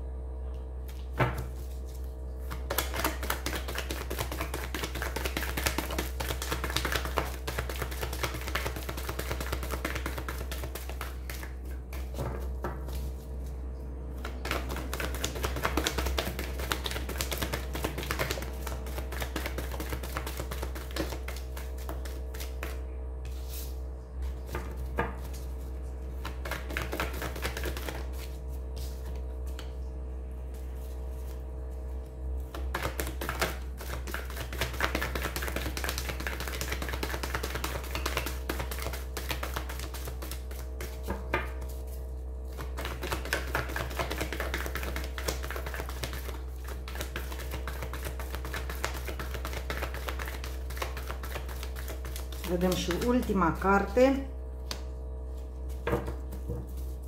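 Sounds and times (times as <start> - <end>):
steady low hum: 0.0 - 57.0
cards shuffled by hand: 0.9 - 13.5, 14.2 - 23.7, 24.5 - 29.8, 32.5 - 41.9, 42.5 - 53.4, 54.6 - 57.0.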